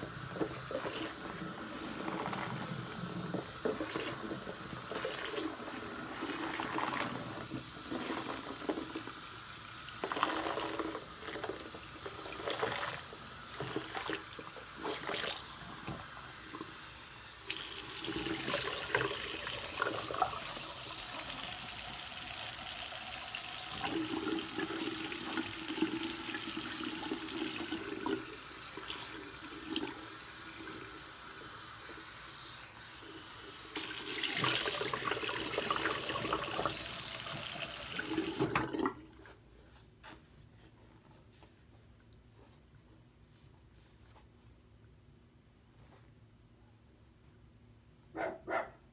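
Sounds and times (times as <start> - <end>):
sponge squishing: 0.2 - 9.0.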